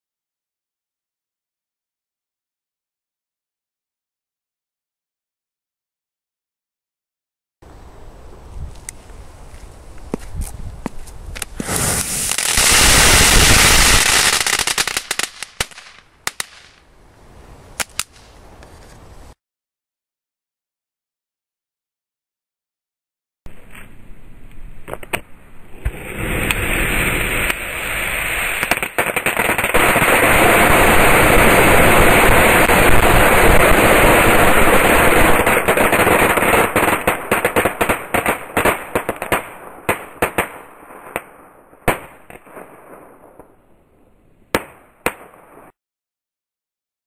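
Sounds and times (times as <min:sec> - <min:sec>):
firecrackers crackling and popping: 0:11.3 - 0:16.8, 0:17.8 - 0:18.4, 0:25.8 - 0:43.6.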